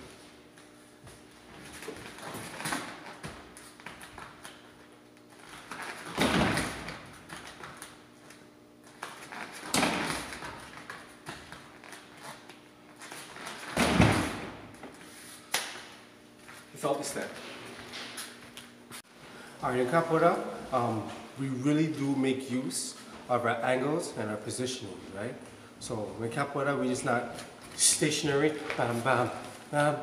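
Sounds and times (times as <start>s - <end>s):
kicks thudding on training dummy: 13.7s - 14.7s.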